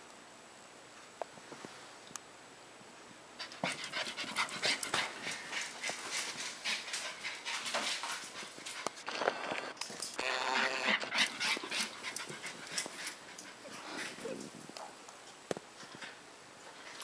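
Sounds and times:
puppy panting rapidly: 3.4 - 8.8, 10.8 - 14.2.

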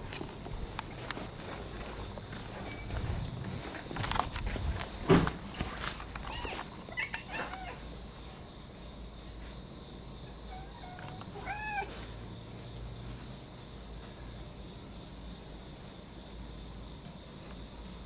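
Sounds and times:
cat yowling: 6.2 - 8.0, 10.4 - 12.0.

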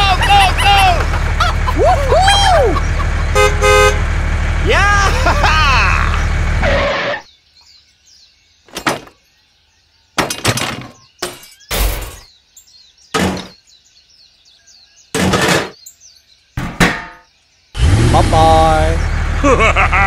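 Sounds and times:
birds chirping: 0.0 - 20.0.

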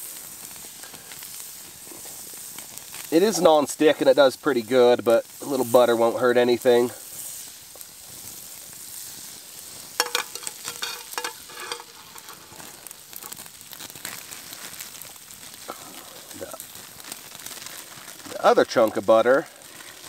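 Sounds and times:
butter sizzling in a frying pan: 0.0 - 20.0.

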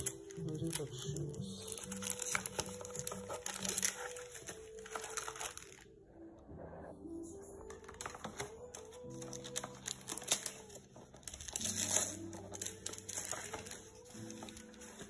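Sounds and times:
paper wrapping crinkling: 0.0 - 6.0, 7.6 - 15.0.

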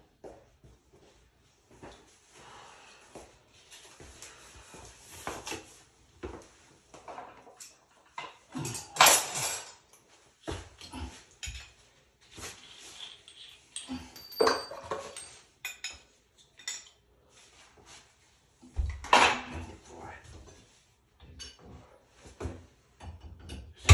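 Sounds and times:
tools clattering on tiled floor: 6.2 - 17.0.

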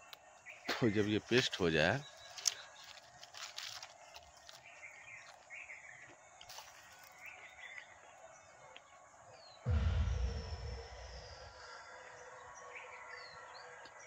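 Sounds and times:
low rumble: 9.7 - 11.9.

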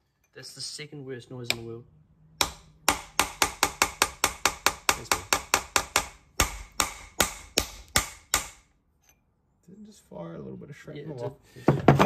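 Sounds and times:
hammer tapping on steel: 1.5 - 1.7, 2.4 - 8.6.

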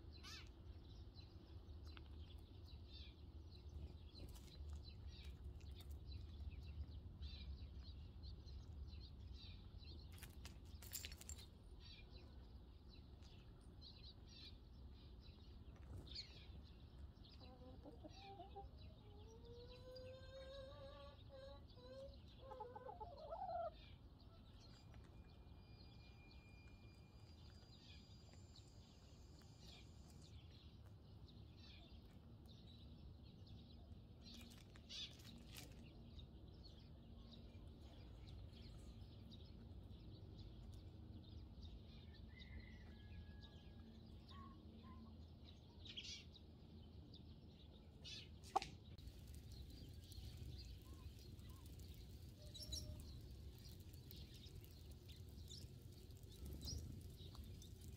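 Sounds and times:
faint distant bird chirps: 42.0 - 46.4
soft scratches on gravel: 49.0 - 57.9.

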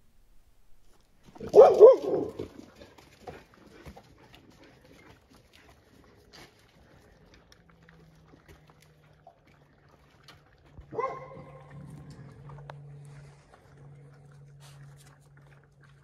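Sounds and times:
puppies crunching kibble: 0.8 - 16.0
low hum: 6.5 - 16.0.

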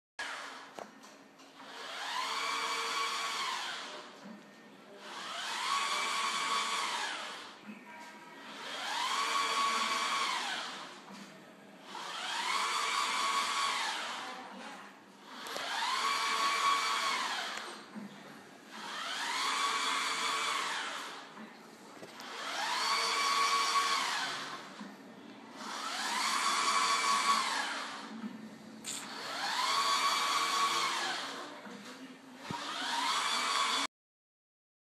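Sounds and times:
printer carriage motor whine: 1.6 - 4.0, 4.9 - 7.7, 8.4 - 14.2, 15.3 - 21.4, 22.0 - 28.3, 28.9 - 31.4, 32.4 - 33.8.

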